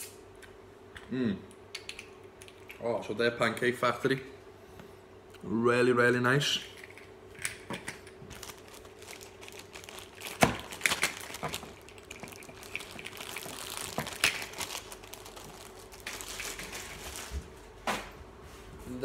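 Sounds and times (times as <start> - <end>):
plastic bag crinkling: 8.2 - 17.6.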